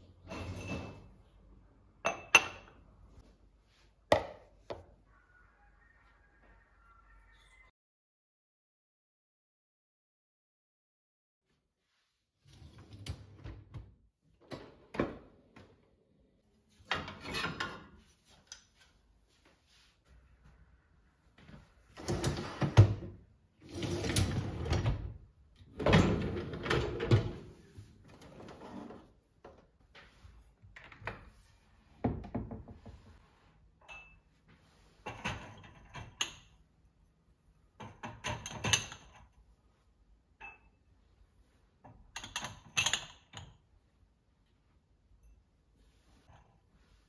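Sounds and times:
dishwasher racks rattling: 0:25.8 - 0:27.5.

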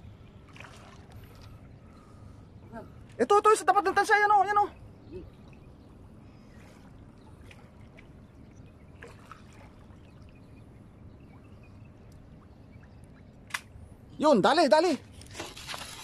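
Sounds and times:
water lapping and trickling: 0:00.0 - 0:16.0
small water splashes: 0:00.2 - 0:02.2, 0:05.2 - 0:13.8.

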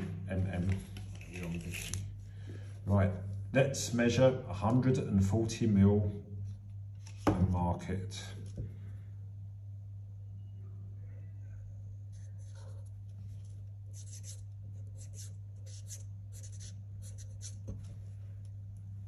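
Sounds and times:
steady low hum: 0:00.0 - 0:19.0
marker pen writing on metal pipe: 0:13.9 - 0:17.8.

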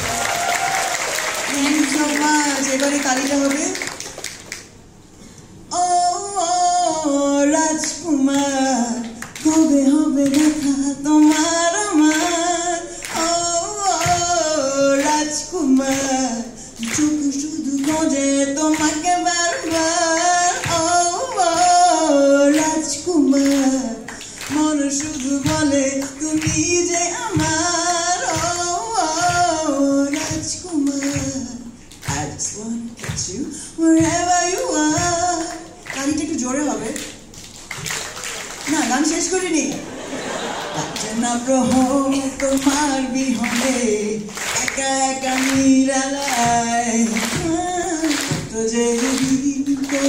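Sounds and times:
hand claps: 0:00.0 - 0:04.8, 0:09.0 - 0:14.4, 0:15.8 - 0:16.2, 0:16.8 - 0:17.2, 0:17.8 - 0:18.1, 0:18.7 - 0:21.8, 0:22.5 - 0:22.8, 0:23.4 - 0:27.7, 0:28.3 - 0:32.4, 0:33.0 - 0:33.3, 0:34.0 - 0:36.1, 0:36.9 - 0:39.0, 0:40.6 - 0:50.0
woman singing into microphone: 0:05.7 - 0:37.2, 0:40.8 - 0:50.0.

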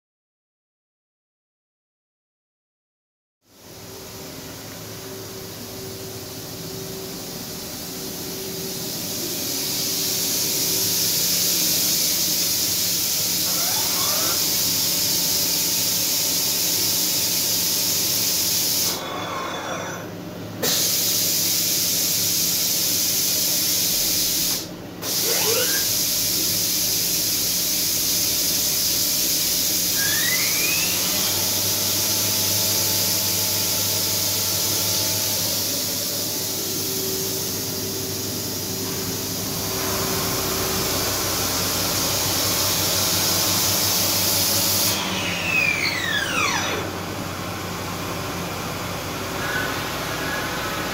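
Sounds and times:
machine spindle hissing: 0:05.2 - 0:47.0, 0:48.8 - 0:50.9
short rising squeaks: 0:13.4 - 0:14.4, 0:25.2 - 0:26.0, 0:29.9 - 0:31.4.

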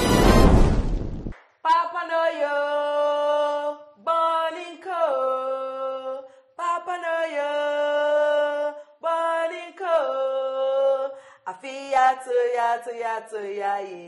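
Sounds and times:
woman singing unaccompanied: 0:01.7 - 0:14.0.

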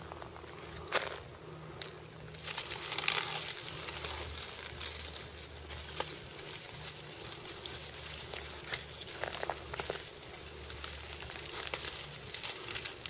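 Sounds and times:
dry leaves rustling and crackling: 0:00.0 - 0:13.0.

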